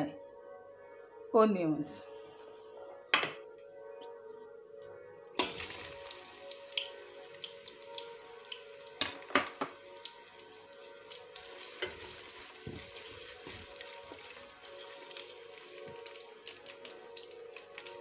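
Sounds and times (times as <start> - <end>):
onions sizzling in hot oil: 5.4 - 18.0.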